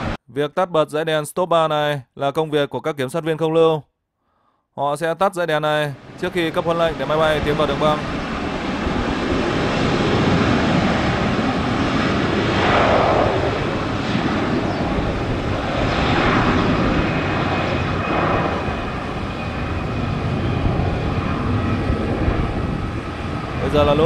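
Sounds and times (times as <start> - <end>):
jet engines roaring: 0.0 - 0.2, 6.0 - 24.0.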